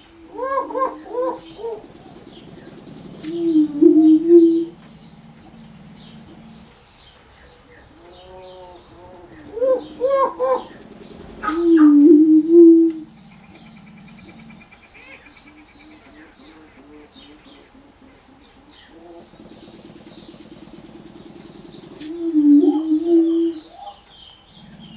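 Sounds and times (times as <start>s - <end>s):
low moaning booming call: 0.0s - 7.0s, 7.6s - 14.9s
small birds chirping: 0.0s - 24.9s.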